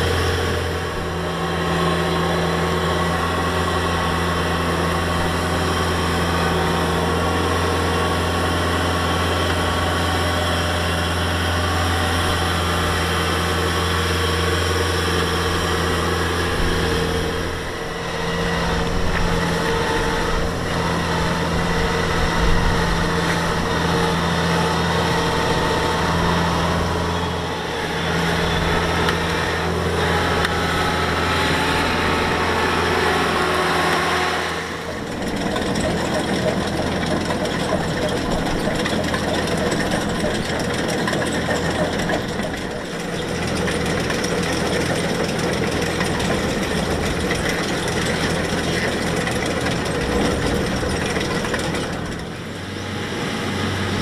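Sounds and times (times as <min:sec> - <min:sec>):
combine harvester diesel engine: 0:00.0 - 0:54.0
machinery noise: 0:00.0 - 0:54.0.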